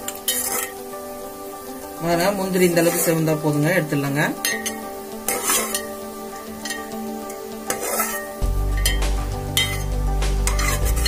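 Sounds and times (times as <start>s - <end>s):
metal ladle scraping a pot: 0.0s - 0.9s, 4.4s - 9.0s, 9.6s - 11.0s
background music: 0.0s - 11.0s
nuts frying with light sizzle: 0.0s - 11.0s.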